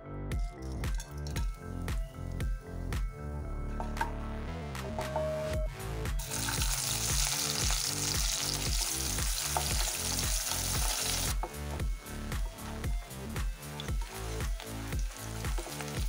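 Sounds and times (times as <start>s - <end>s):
background music with steady beat: 0.0s - 16.0s
onions sizzling in hot oil: 6.2s - 11.5s, 12.6s - 16.0s.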